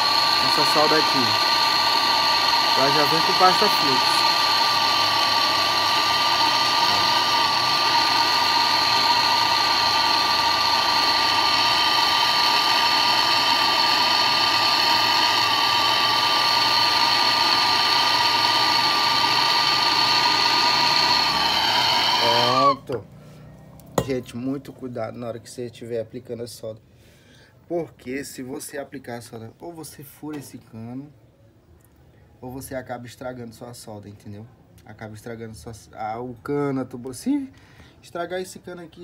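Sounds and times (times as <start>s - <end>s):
gas torch flame hissing: 0.0s - 23.0s.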